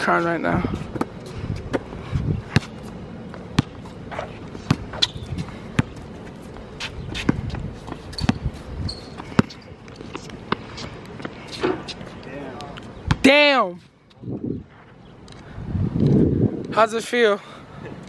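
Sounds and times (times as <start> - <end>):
basketball bouncing on court: 2.5 - 2.8, 3.5 - 3.9, 4.7 - 6.0, 7.2 - 9.6.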